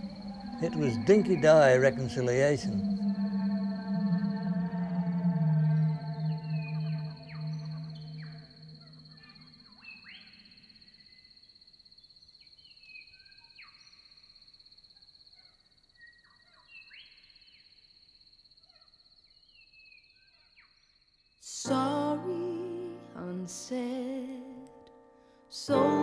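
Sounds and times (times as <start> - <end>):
pulsing insect trill: 0.0 - 19.4.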